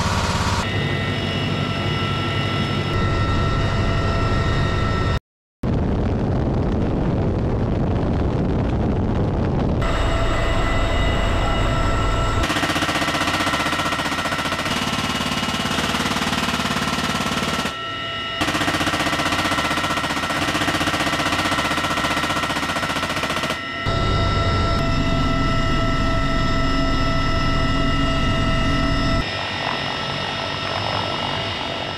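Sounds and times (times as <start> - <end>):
helicopter rotor and turbine: 0.0 - 5.2, 9.1 - 31.9
machine gun firing rapidly: 12.4 - 17.8, 18.4 - 23.6.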